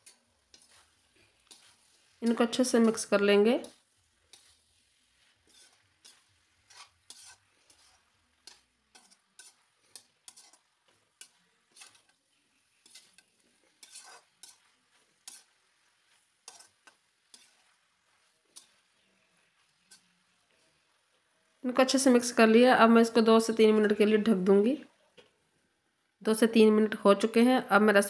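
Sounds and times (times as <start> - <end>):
spatula scraping metal pan: 0.0 - 21.2.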